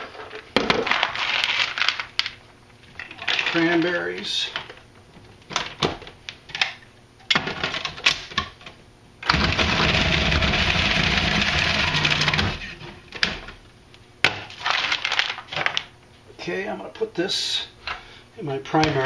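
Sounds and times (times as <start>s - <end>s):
food processor motor running: 9.2s - 12.7s.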